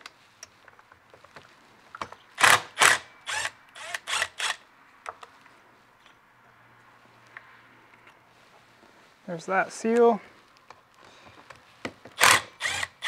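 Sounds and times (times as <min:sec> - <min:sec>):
cordless screwdriver whirring: 0:02.4 - 0:04.6, 0:12.2 - 0:13.0.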